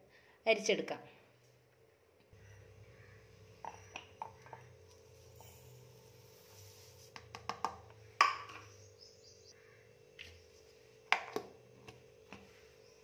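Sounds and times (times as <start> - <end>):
faint steady hum: 0.0 - 13.0
sugar pouring: 4.6 - 7.2.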